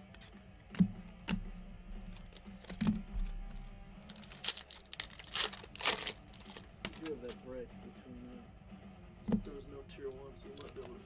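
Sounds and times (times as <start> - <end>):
cards clicking and tapping: 0.0 - 7.4, 10.1 - 11.0
faint background music: 0.0 - 11.0
crinkly card rustles: 2.0 - 7.5, 10.4 - 11.0.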